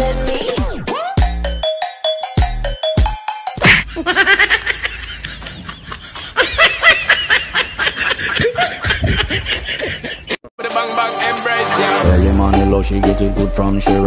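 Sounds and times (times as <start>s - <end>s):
rapid high-pitched laughter: 3.6s - 10.4s.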